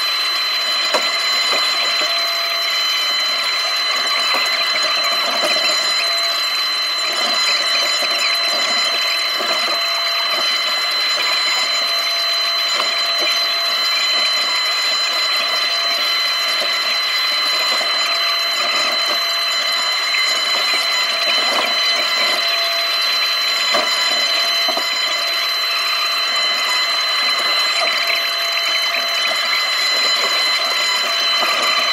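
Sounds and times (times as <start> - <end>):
excavator engine and hydraulic drone: 0.0 - 31.9
high whine: 0.0 - 31.9.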